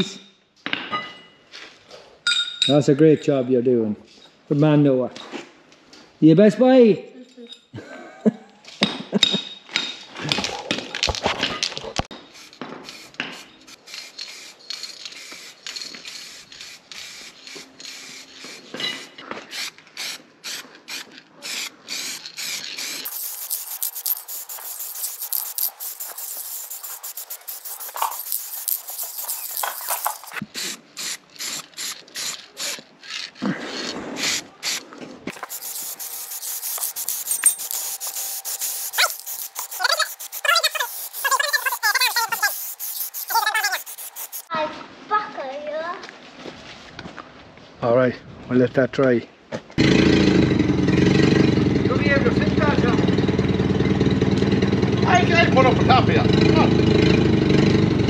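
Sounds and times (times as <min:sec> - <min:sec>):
spray paint hissing: 0:12.2 - 0:44.5
spray can rattling: 0:12.3 - 0:33.4, 0:34.2 - 0:44.5.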